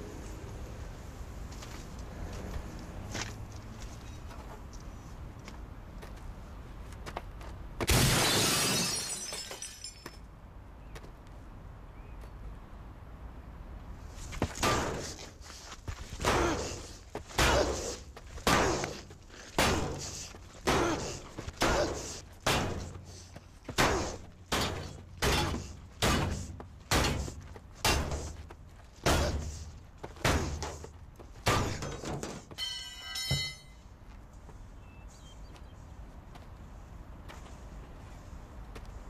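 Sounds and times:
crowbar clanging on car body: 31.5 - 33.8.

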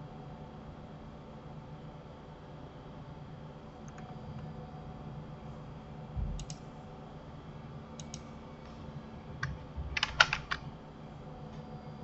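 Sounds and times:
mouse clicks: 8.0 - 8.3
keyboard keystrokes: 10.0 - 10.6.

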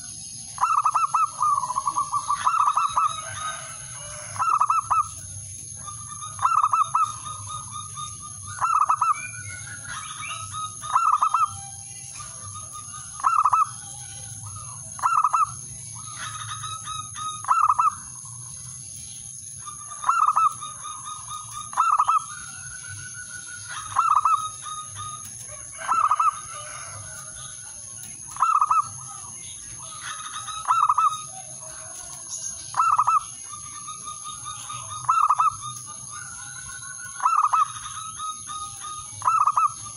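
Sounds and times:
dove cooing: 0.0 - 18.4, 19.6 - 39.9.

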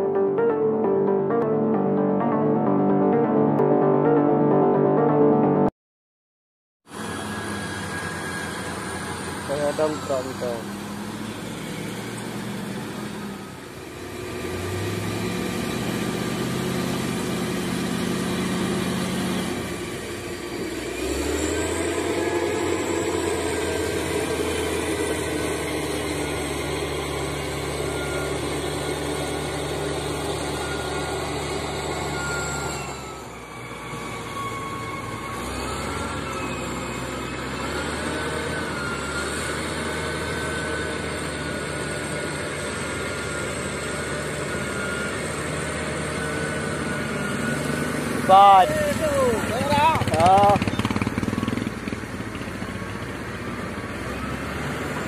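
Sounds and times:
heavy diesel engines under load: 6.9 - 55.0.

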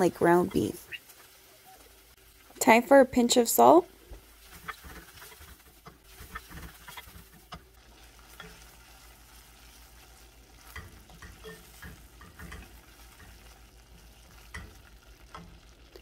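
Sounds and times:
meat sizzling in a pan: 0.0 - 16.0
wooden spatula scraping pan: 4.2 - 9.0.

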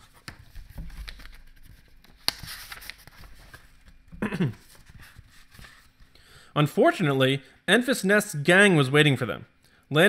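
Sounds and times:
paper pages rustling: 0.0 - 6.2.

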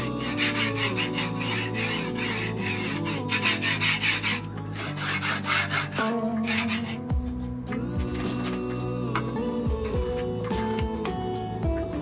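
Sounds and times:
bearing block rasping on rail: 0.0 - 7.2
background music: 0.0 - 12.0.

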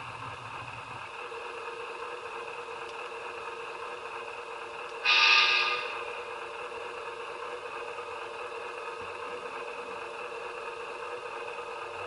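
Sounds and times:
model locomotive engine hum: 0.0 - 12.0.

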